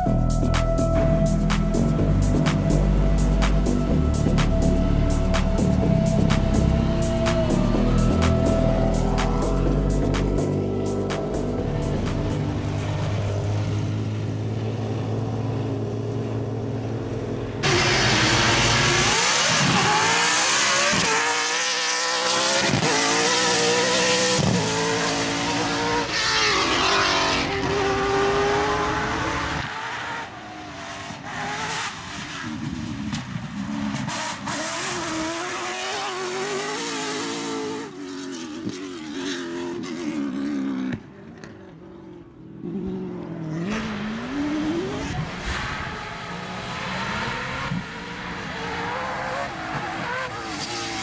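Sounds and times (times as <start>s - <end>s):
low drone: 0.0s - 19.2s
rally car engine revving: 0.6s - 41.6s, 42.6s - 51.0s.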